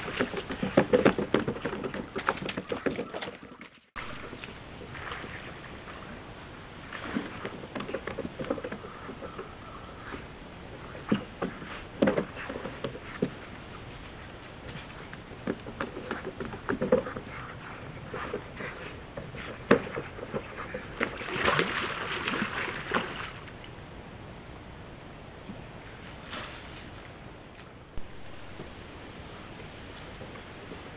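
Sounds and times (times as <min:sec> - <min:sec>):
splashing water: 0:00.0 - 0:06.2, 0:18.2 - 0:23.6.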